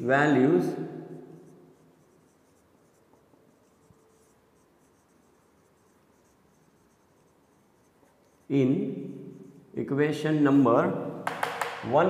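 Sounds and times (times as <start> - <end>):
marker pen scratching on whiteboard: 1.2 - 9.8, 11.3 - 11.9.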